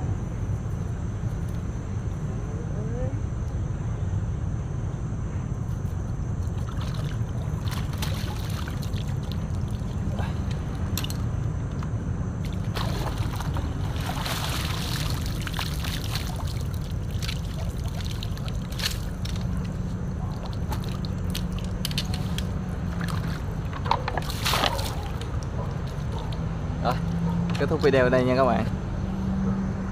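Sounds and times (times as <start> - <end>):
steady low rumble: 0.0 - 29.2
water sloshing and splashing: 6.4 - 11.8, 12.4 - 27.4.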